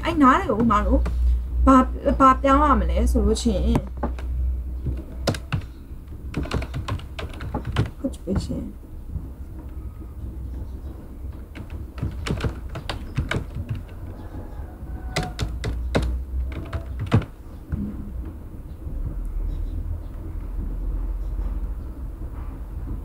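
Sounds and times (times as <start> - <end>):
low background rumble: 0.0 - 23.0
keyboard typing: 3.7 - 8.7, 11.3 - 17.4.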